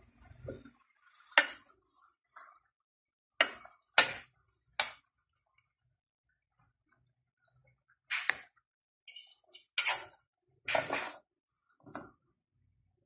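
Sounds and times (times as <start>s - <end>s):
utensils clinking on metal pot: 9.1s - 11.1s.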